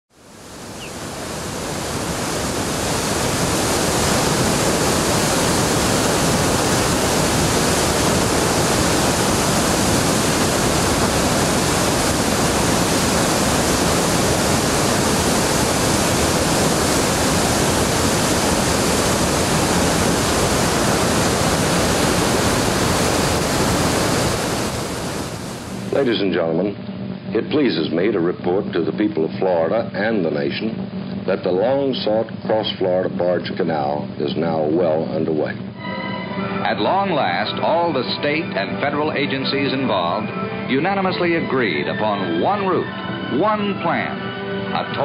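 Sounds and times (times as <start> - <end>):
whitewater rushing: 0.6 - 25.7.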